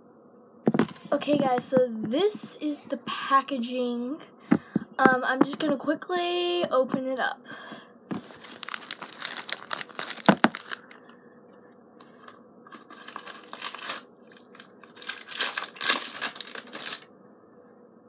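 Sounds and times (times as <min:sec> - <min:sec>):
packaging crinkling: 0:08.1 - 0:11.0, 0:12.0 - 0:17.1
padded mailer tearing: 0:08.2 - 0:11.0, 0:12.1 - 0:17.0.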